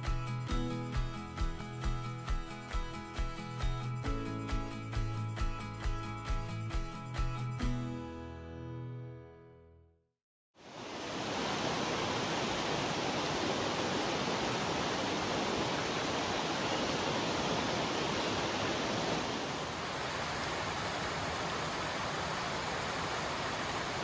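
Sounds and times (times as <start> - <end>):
guitar music: 0.0 - 9.8
river rushing over rocks: 10.6 - 24.0.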